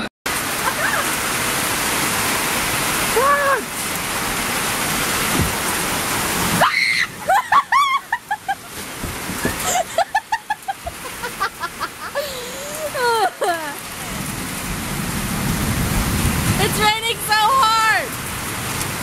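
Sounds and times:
heavy rain pouring: 0.0s - 19.0s
person calling out: 3.2s - 3.7s.

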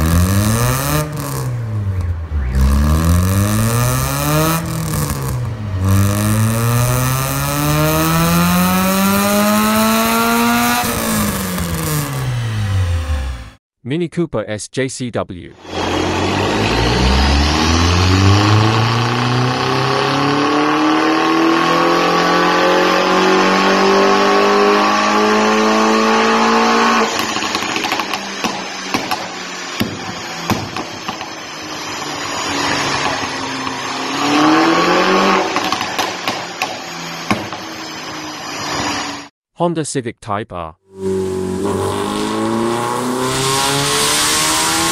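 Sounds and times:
exhaust crackles: 0.0s - 13.4s, 15.7s - 37.7s
car engine revving at full throttle: 0.0s - 13.6s, 15.6s - 39.3s, 40.9s - 44.9s.

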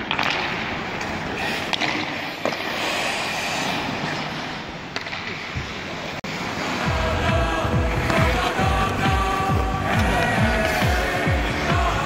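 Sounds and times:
stick clacking on puck: 0.0s - 2.8s
skate blades scraping ice: 0.0s - 6.8s, 8.0s - 11.7s.

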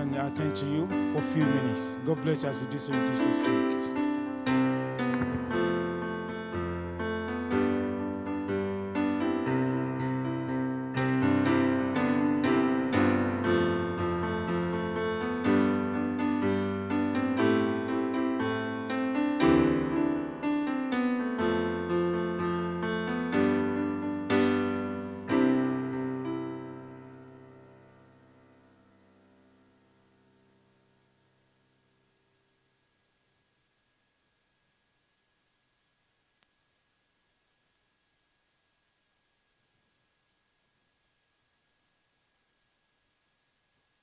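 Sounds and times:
keyboard music: 0.0s - 27.8s.

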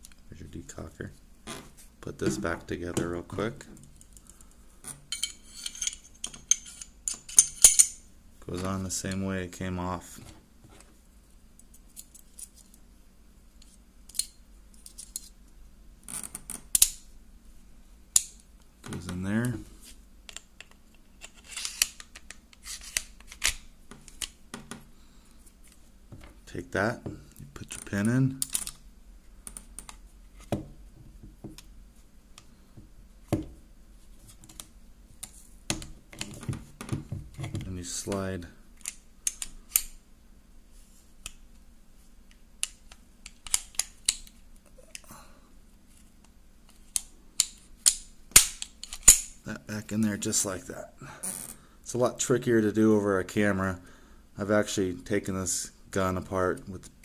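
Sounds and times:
pistol parts clicking: 16.5s - 17.0s, 38.8s - 40.0s, 42.6s - 44.4s, 46.7s - 49.4s.

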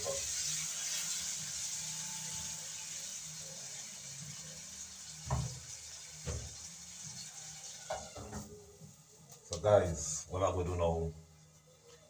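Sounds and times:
tap running into metal sink: 5.2s - 5.6s, 6.2s - 6.6s.

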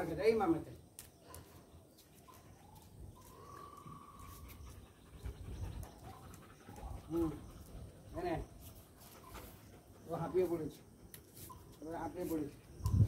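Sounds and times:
dog panting: 3.8s - 11.6s.

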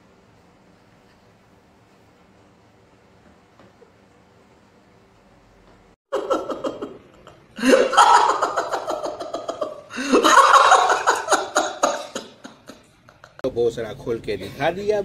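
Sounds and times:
person laughing loudly: 6.1s - 13.4s.

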